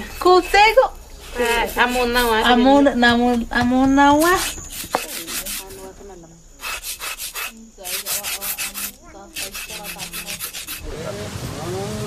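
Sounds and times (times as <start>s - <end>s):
rasping scraping strokes: 0.0s - 2.8s, 4.2s - 5.9s, 6.6s - 10.9s
rain hissing: 6.6s - 12.0s.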